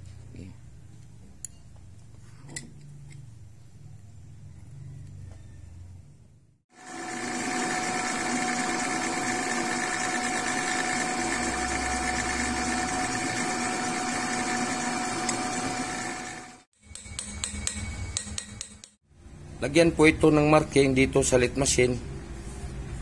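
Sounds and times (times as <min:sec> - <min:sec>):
drill bit drilling into steel: 0:06.8 - 0:18.7
drill press motor whine: 0:06.8 - 0:18.8.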